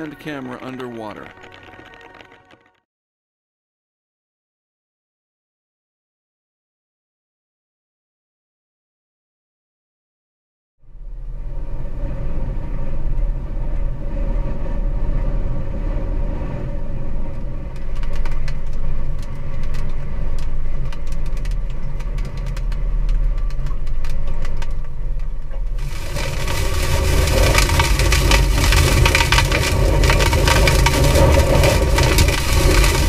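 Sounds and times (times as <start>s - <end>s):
hurricane wind rumbling: 25.7s - 33.0s.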